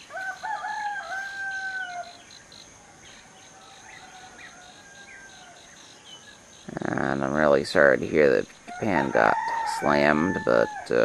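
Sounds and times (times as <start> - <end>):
rooster crowing: 0.0 - 2.2, 3.2 - 5.8, 8.7 - 11.0
small birds chirping: 0.0 - 11.0.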